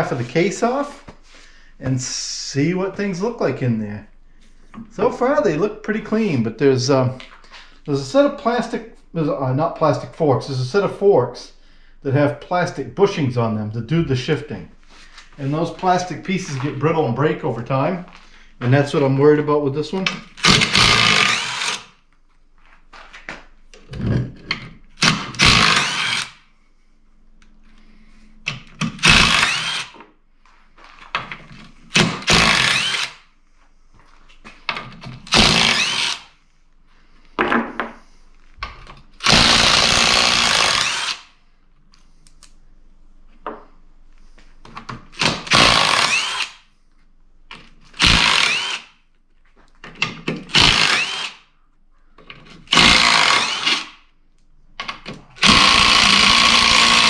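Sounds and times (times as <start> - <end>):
cordless drill spinning out bolts: 20.2 - 21.9, 25.0 - 26.4, 28.9 - 30.0, 32.0 - 33.2, 35.2 - 36.3, 39.2 - 41.3, 45.2 - 46.6, 48.0 - 48.9, 50.4 - 51.4, 52.7 - 54.0, 55.4 - 57.0.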